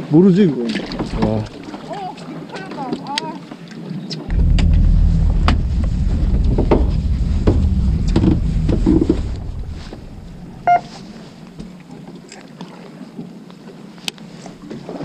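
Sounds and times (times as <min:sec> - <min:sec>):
wind rumble on microphone: 0:04.3 - 0:11.8.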